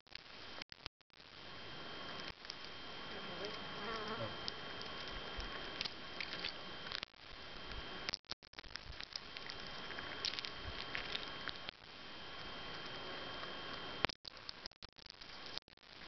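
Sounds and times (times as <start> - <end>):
faint steady hiss: 1.2 - 8.1
flying insect buzzing past: 3.2 - 4.4
chipmunk husking seeds clicks: 8.6 - 11.6.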